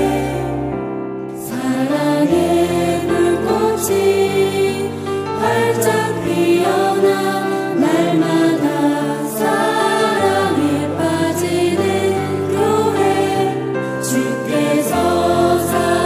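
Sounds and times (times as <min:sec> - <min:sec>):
choir singing held notes: 0:00.0 - 0:00.8, 0:01.4 - 0:16.0.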